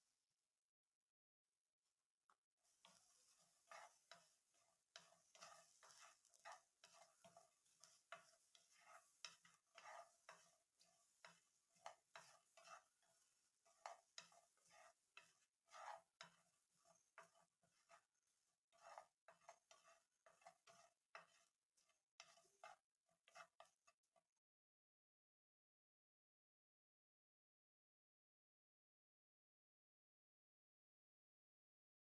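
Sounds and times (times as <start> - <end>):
wooden spatula scraping a pan: 2.6 - 24.3.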